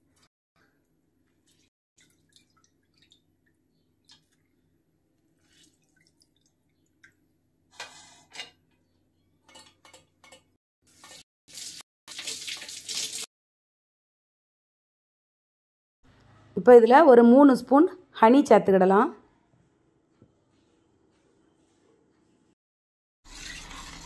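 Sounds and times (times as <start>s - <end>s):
juice dripping into a pot: 0.7s - 7.4s.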